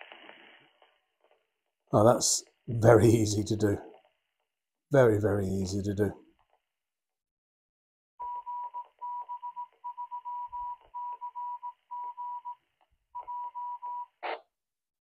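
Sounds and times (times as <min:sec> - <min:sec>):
radio hiss: 0:00.0 - 0:00.9
morse code tone: 0:08.2 - 0:12.6, 0:13.2 - 0:14.1.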